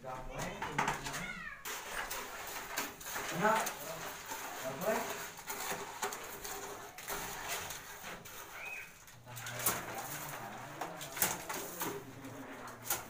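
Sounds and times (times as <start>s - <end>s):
bird cooing: 8.6s - 9.0s.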